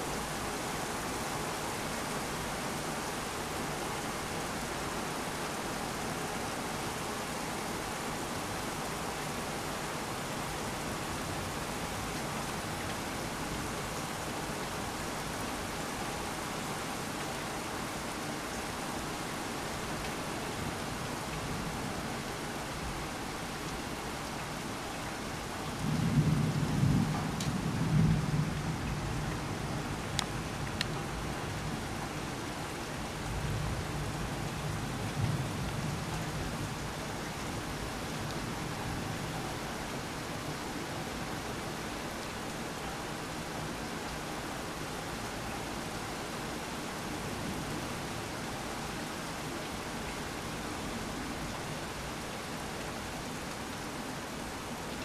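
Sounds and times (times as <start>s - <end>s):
heavy rain falling: 0.0s - 55.0s.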